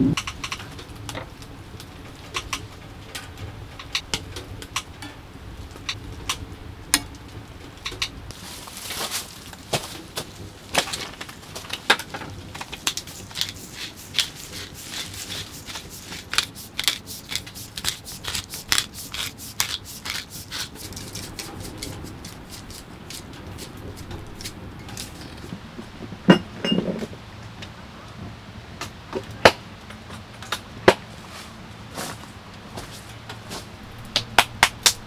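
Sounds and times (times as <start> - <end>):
food packaging rustling: 8.3 - 25.5
quick strokes: 12.8 - 23.8.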